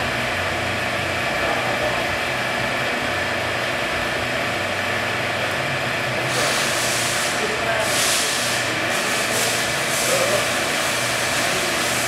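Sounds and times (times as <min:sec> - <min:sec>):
hiss: 0:06.3 - 0:12.0.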